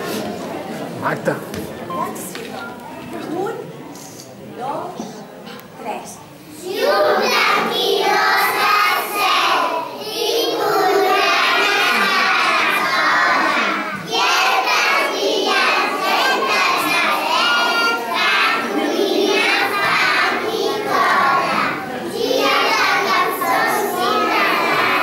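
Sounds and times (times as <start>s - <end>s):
children singing in unison: 6.6s - 25.0s.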